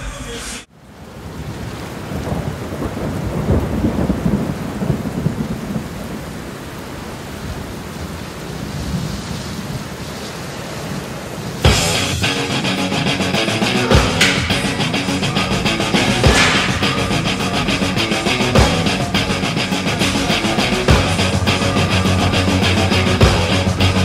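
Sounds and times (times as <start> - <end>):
rain: 0.6 - 24.0
rumbling thunder: 1.3 - 6.5, 13.9 - 24.0.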